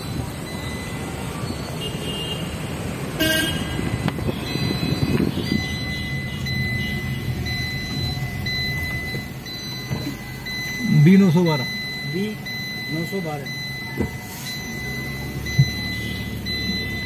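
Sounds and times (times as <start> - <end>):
car engine and road rumble: 0.0 - 17.0
car horn toot: 1.8 - 2.5, 3.2 - 7.5, 15.6 - 16.5
high beeping in long pulses: 3.3 - 17.0.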